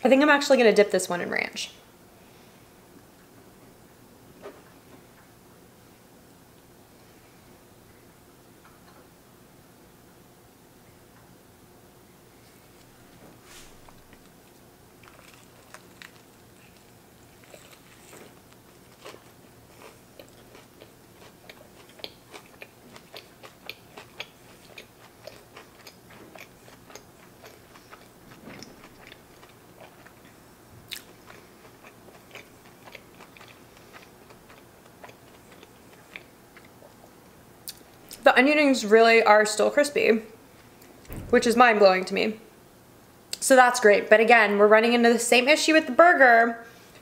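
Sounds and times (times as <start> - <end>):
chewing crunchy food: 13.8 - 38.2.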